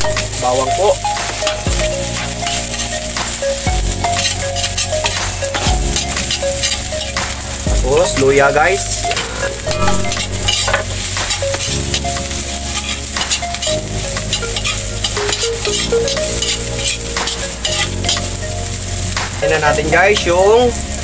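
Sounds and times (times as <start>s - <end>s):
metal spatula scraping a wok: 0.0s - 3.1s, 4.0s - 7.6s, 8.8s - 18.4s
food sizzling in hot oil: 0.0s - 21.0s.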